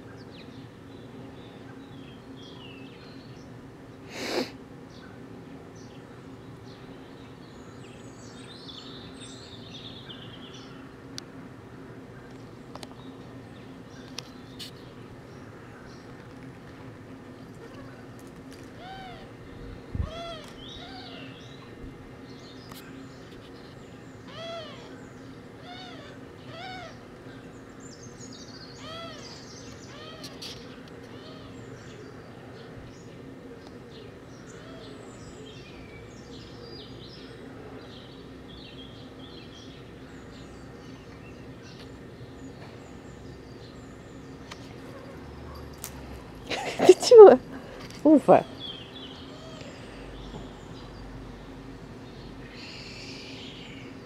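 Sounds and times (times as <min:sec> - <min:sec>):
birds chirping: 0:12.0 - 0:54.0.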